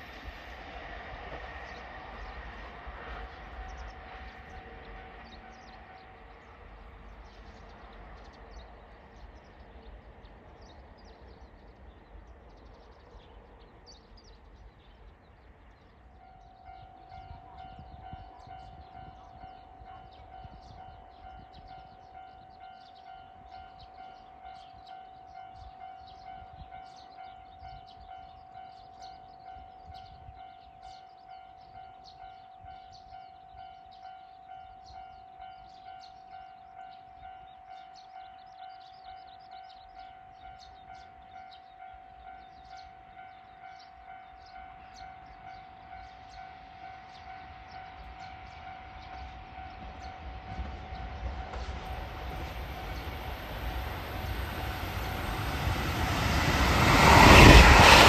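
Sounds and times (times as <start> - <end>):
train rumbling past: 0.0 - 58.0
railway warning alarm ringing: 15.9 - 58.0.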